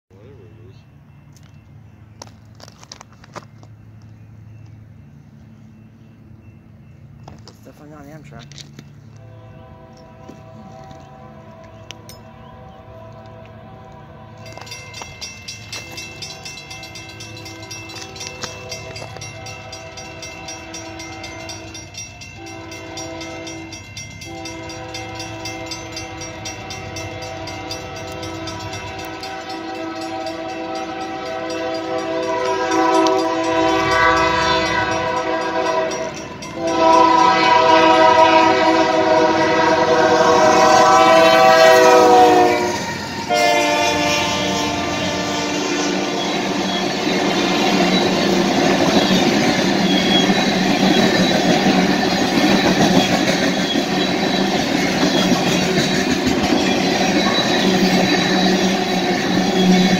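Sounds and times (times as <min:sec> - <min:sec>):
train rumble: 0:00.1 - 0:59.9
locomotive air horn blasts: 0:09.2 - 0:14.8, 0:16.9 - 0:47.6.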